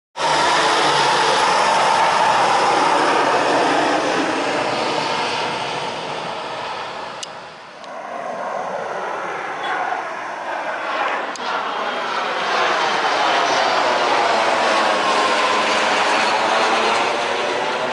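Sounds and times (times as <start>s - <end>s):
aircraft engine noise: 0.2s - 17.9s
turboprop aircraft drone overhead: 0.2s - 17.9s.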